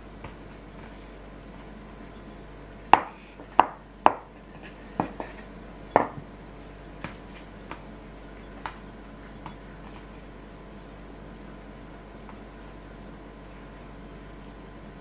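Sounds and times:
hands rolling dough: 0.0 - 2.0, 2.8 - 10.5
dough knocking on wood: 2.9 - 4.3, 5.0 - 5.4, 6.0 - 6.3.

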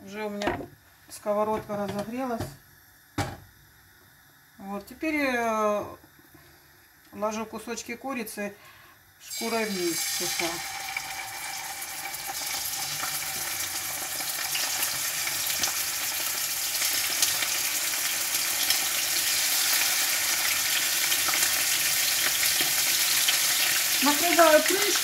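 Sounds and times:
chicken sizzling in oil: 9.2 - 25.0.

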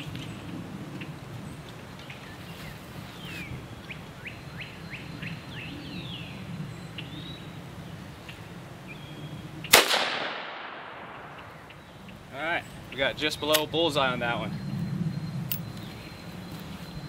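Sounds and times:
small birds chirping: 0.0 - 9.7, 11.2 - 17.0
gunshot with echo: 9.7 - 11.4.

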